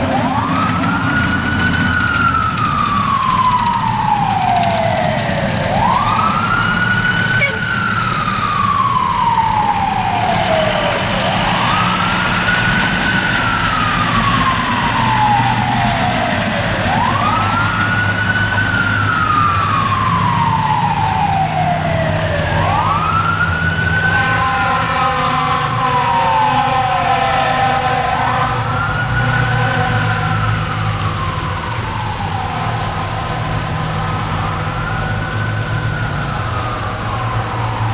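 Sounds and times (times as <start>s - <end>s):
diesel engine rumble: 0.0s - 37.9s
fire truck siren wailing: 0.0s - 37.9s
multi-note horn: 24.1s - 28.7s.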